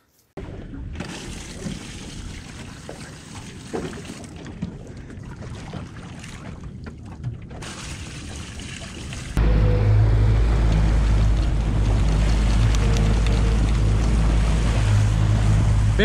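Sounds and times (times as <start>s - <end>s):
water lapping against hull: 0.4s - 9.4s, 10.4s - 16.0s
jug splashes and knocks: 1.0s - 4.8s.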